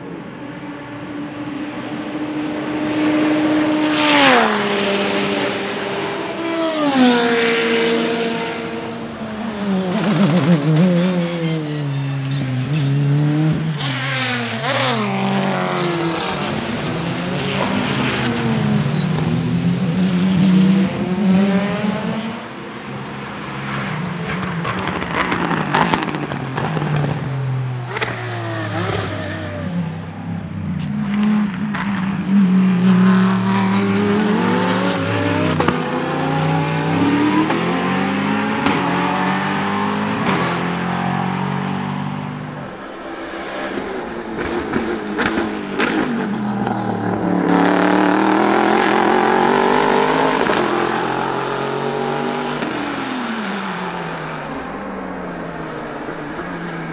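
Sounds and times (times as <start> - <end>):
race car engines revving: 0.0 - 56.9
race car downshifting: 24.2 - 32.3, 33.2 - 56.9.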